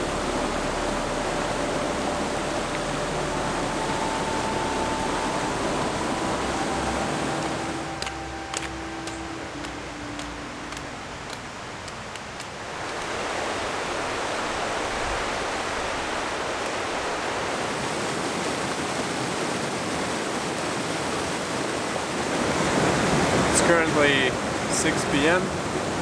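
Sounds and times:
stream rushing over rocks: 0:00.0 - 0:26.0.

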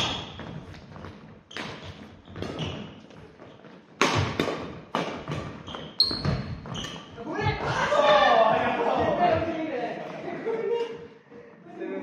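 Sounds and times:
footfalls on wooden court: 0:00.0 - 0:09.6
racket striking shuttlecock: 0:03.9 - 0:07.0.

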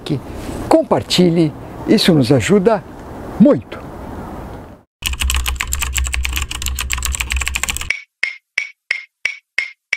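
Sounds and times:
rapid clicks like typing: 0:05.0 - 0:08.0.

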